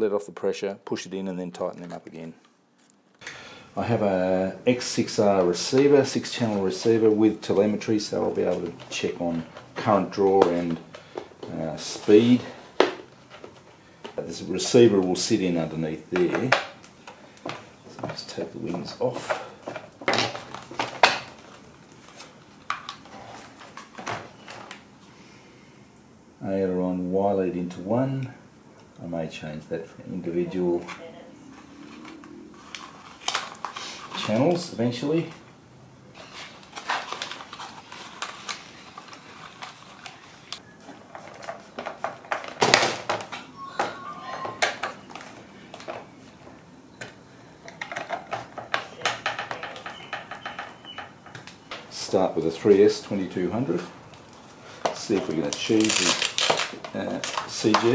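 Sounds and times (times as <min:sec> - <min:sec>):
plastic parts clicking and knocking: 0:47.0 - 0:51.9.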